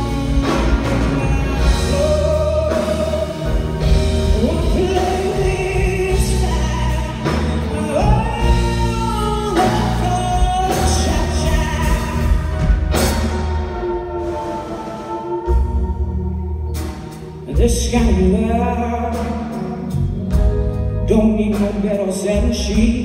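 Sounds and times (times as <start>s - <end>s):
electric bass: 0.0s - 14.6s, 15.4s - 23.0s
keyboard: 0.0s - 23.0s
woman singing: 0.3s - 3.7s.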